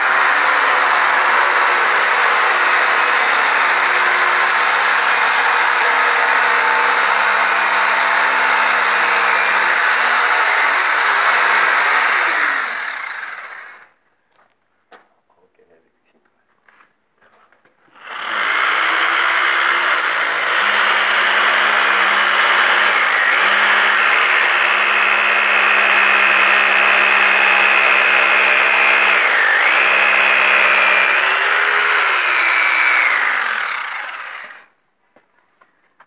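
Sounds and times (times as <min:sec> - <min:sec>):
angle grinder grinding concrete: 0:00.0 - 0:13.9, 0:18.0 - 0:34.7.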